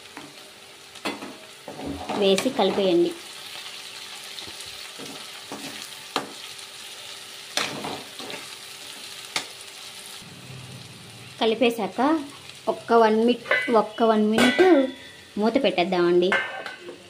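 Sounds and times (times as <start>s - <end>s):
okra sizzling in oil: 0.0s - 17.0s
spatula scraping and knocking pan: 5.0s - 6.4s.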